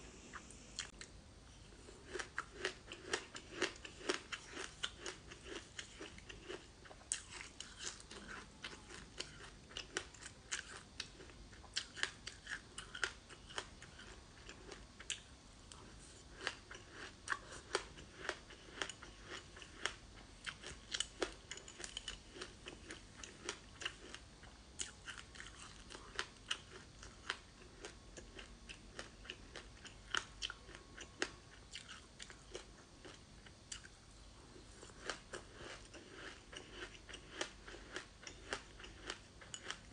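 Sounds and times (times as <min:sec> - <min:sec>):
crisp chewing crunches: 0:01.9 - 0:24.2.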